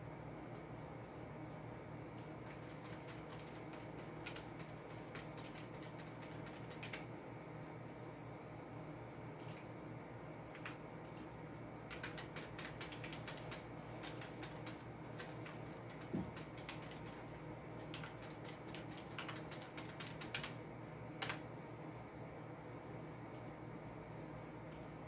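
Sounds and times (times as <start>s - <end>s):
faint low hum: 0.0s - 25.0s
computer keyboard keys tapped: 2.2s - 7.1s, 10.5s - 20.6s, 21.2s - 21.5s.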